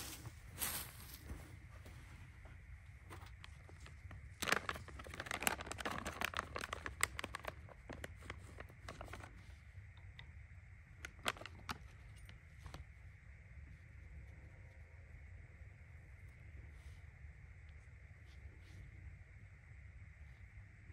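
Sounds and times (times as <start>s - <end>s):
fire starter crinkling and tearing: 3.2s - 9.3s.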